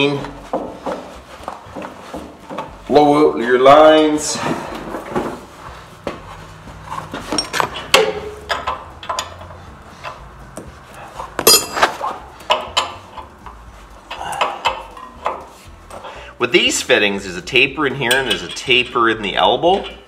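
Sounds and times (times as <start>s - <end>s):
ringing metallic clatter: 7.2s - 10.2s, 11.4s - 13.3s
wrench clinking on metal fittings: 7.3s - 10.2s, 11.4s - 16.0s, 17.9s - 20.0s.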